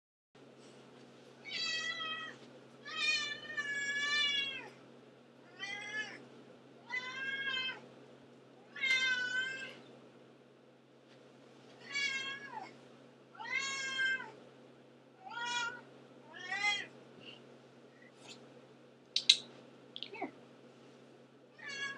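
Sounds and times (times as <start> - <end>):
cat meowing: 15.2 - 16.9, 21.6 - 21.9.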